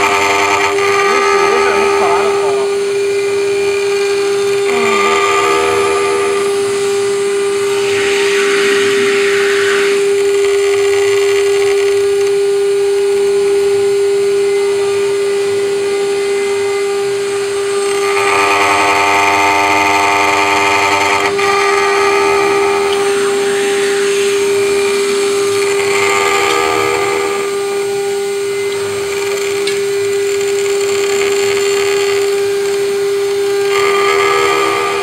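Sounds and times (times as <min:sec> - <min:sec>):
harsh metal cutting noise: 0:00.0 - 0:35.0
router spindle whining: 0:00.0 - 0:35.0.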